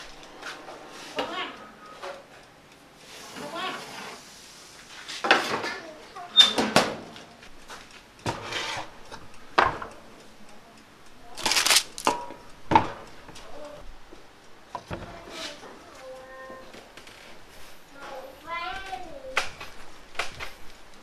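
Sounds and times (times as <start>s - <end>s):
metal tray clanking and scraping: 8.3s - 8.9s
baking paper rustling: 11.4s - 12.1s.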